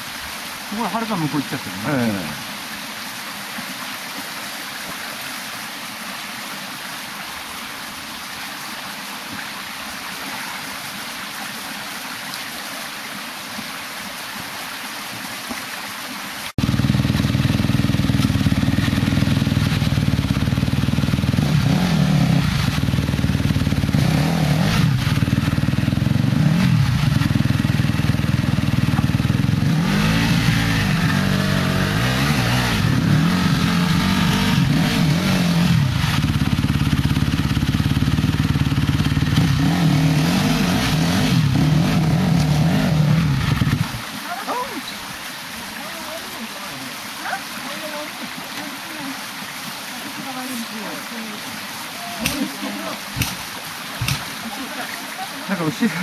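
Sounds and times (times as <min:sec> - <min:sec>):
water running over rocks: 0:00.0 - 0:56.0
motorcycle engine revving hard: 0:16.6 - 0:44.0.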